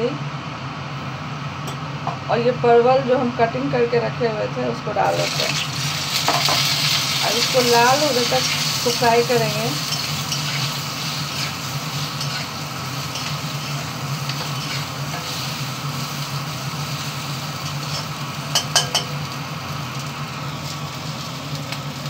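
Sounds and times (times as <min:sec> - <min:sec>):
low steady hum: 0:00.0 - 0:22.0
vegetables sizzling in oil: 0:04.8 - 0:22.0.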